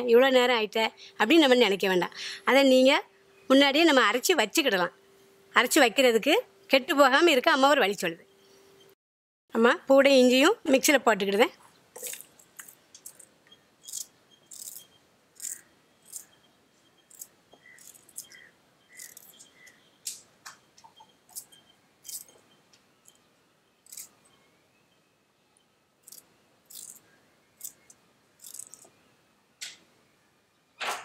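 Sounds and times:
utensil scraping ginger root: 13.8s - 16.4s, 17.0s - 19.4s, 21.3s - 22.4s, 23.8s - 24.2s, 26.0s - 27.0s, 27.6s - 28.8s.

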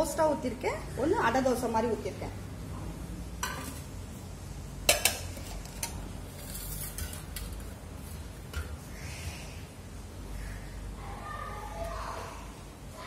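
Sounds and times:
metal plates and utensils clinking: 4.8s - 8.8s.

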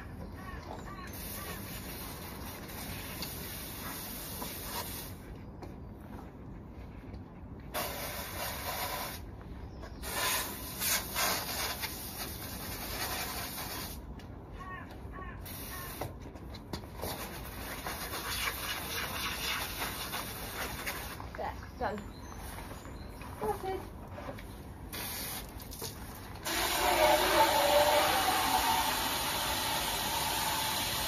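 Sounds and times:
hose nozzle spraying water: 24.9s - 31.0s.

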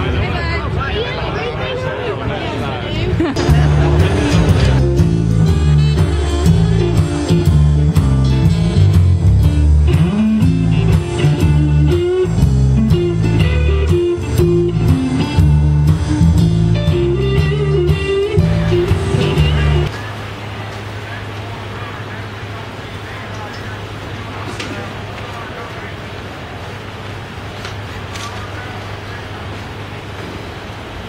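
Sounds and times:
blues band playing: 3.2s - 20.2s
electric bass line: 3.4s - 19.9s.

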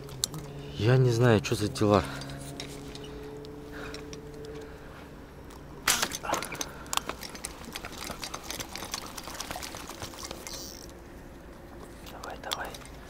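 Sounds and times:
water splashing and dripping: 7.3s - 10.7s.

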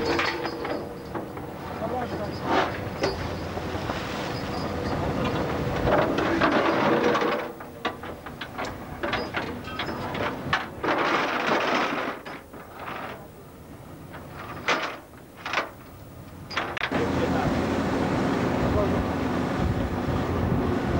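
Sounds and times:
metal gear clanking on deck: 0.0s - 3.4s, 4.4s - 13.3s, 14.2s - 15.8s
ship's wake rushing: 0.0s - 20.9s.

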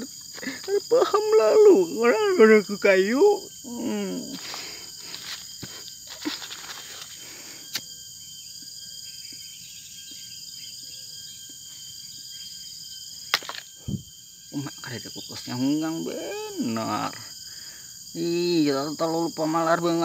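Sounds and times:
insects chirring: 0.0s - 20.0s
handling rustles: 6.1s - 7.2s.

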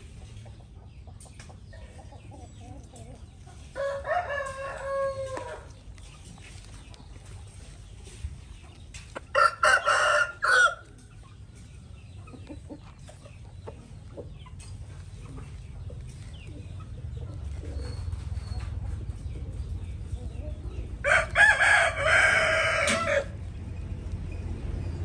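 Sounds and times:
rooster crowing: 3.8s - 5.7s, 9.4s - 10.8s, 21.0s - 23.4s.

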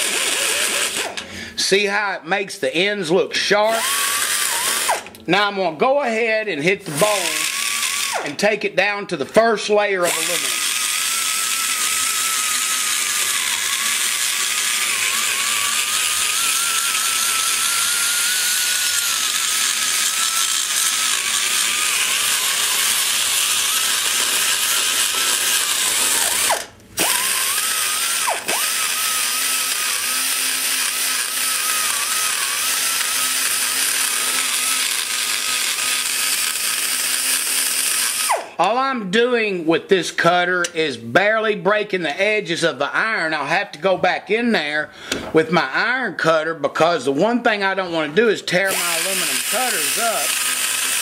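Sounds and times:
die grinder whining: 0.0s - 1.6s, 3.5s - 5.3s, 6.8s - 8.5s, 9.8s - 38.8s, 48.5s - 51.0s.

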